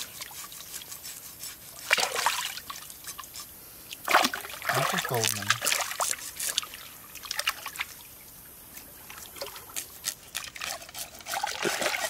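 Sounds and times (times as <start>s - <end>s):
shallow water splashing: 4.0s - 8.1s, 10.5s - 12.0s.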